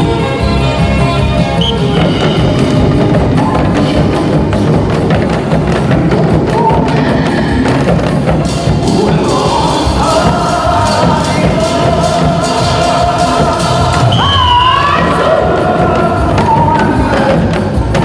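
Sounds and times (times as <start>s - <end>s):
drum ensemble playing: 0.0s - 18.0s
trot music: 0.0s - 18.0s.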